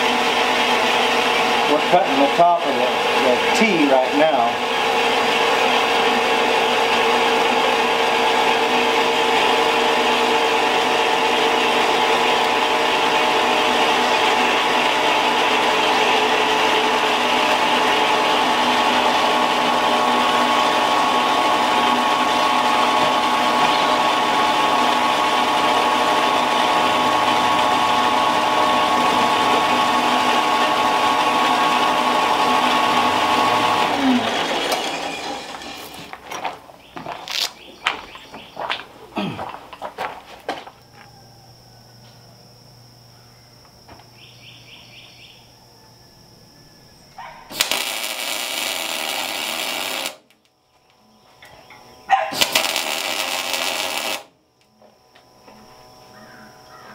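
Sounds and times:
band saw cutting steel tube: 0.0s - 36.1s, 47.5s - 50.2s, 52.3s - 54.3s
motor winding down: 0.0s - 36.2s, 40.7s - 50.5s, 51.4s - 56.8s.

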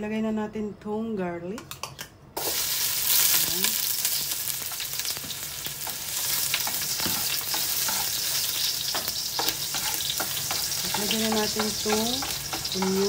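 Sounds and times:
garlic sizzling in oil: 2.4s - 13.0s
metal spoon scraping pot: 8.9s - 13.0s.

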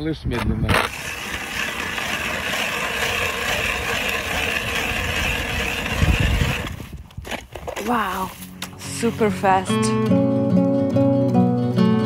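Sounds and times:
ice auger grinding through ice: 0.6s - 9.0s.

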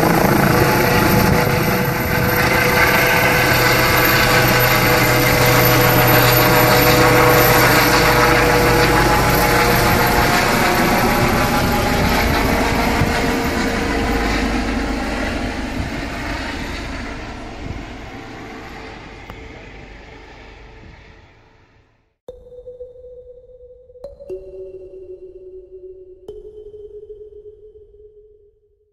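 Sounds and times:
helicopter flying overhead: 0.0s - 22.0s.

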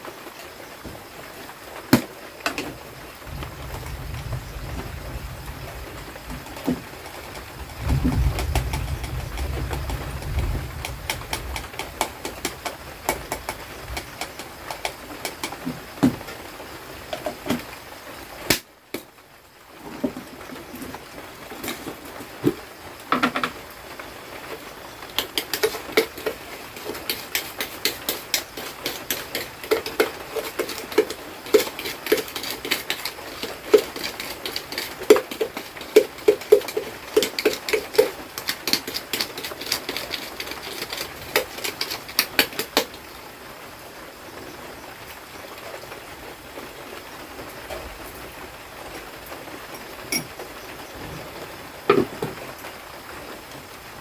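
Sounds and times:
steady rain hiss: 0.0s - 54.0s
spoon scraping in plastic jar: 25.2s - 42.9s.

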